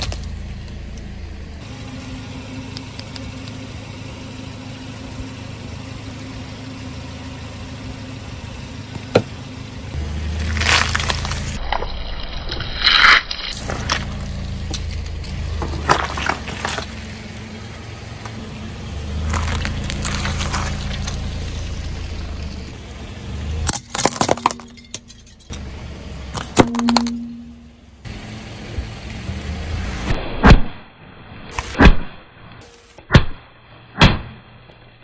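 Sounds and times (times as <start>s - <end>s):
car running rumble: 0.0s - 35.0s
objects cracking and crunching: 10.4s - 17.0s, 19.2s - 21.2s, 23.7s - 25.1s.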